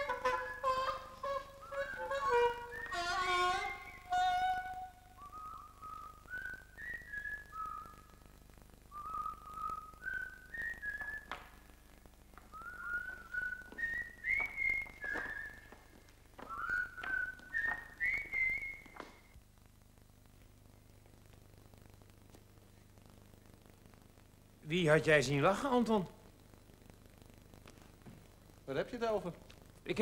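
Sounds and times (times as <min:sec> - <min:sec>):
person whistling a tune: 0:12.5 - 0:15.7, 0:16.4 - 0:19.0.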